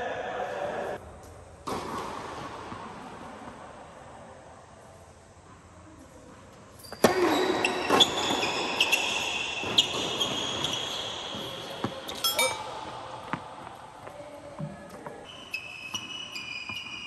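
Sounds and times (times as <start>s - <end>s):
ringing chime-like tones: 12.2s - 12.8s.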